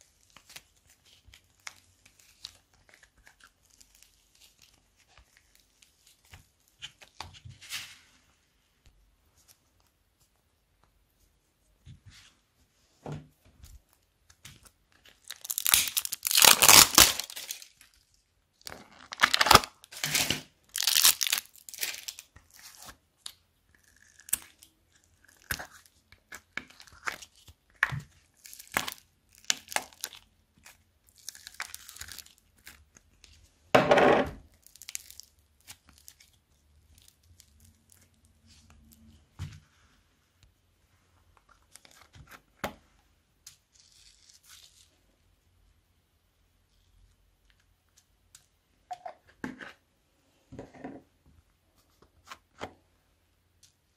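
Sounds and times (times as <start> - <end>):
sticky slime tearing and crackling: 15.1 - 18.0, 18.6 - 32.9, 34.5 - 38.2.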